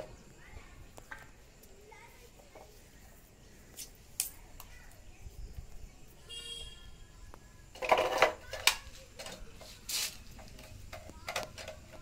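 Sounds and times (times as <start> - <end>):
hand tools clicking and knocking: 7.7 - 12.0.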